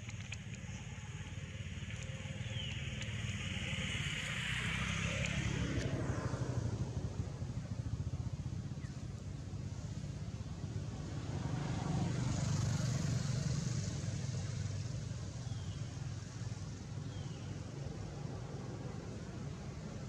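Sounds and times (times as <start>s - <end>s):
constant hiss: 0.0s - 5.6s
distant vehicle motor rumble: 0.0s - 20.0s.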